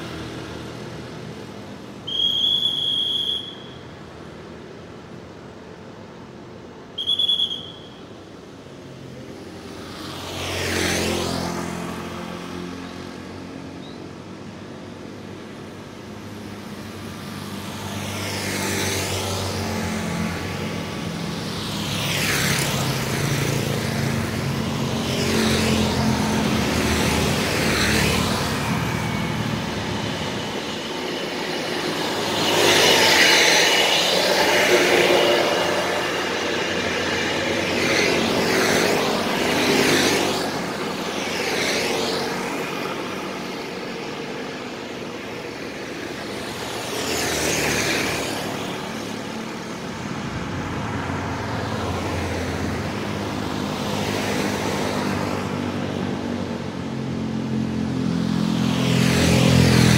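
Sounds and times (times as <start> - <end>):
cars passing by: 0.0 - 59.9
motorcycles passing by: 8.8 - 15.3, 16.0 - 59.9
bus passing close: 16.3 - 59.9
truck passing close: 22.8 - 44.4.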